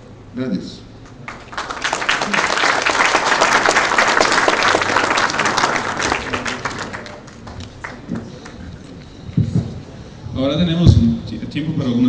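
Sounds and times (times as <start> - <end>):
audience applauding: 1.1 - 9.0.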